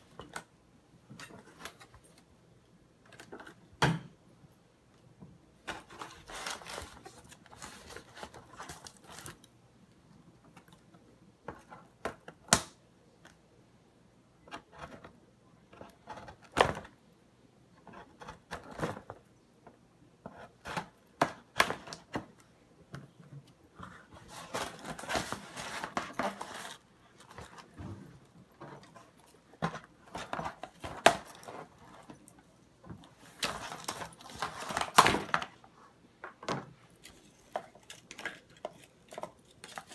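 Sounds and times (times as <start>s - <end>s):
packaging rustling and tearing: 5.7s - 9.4s, 24.2s - 27.7s.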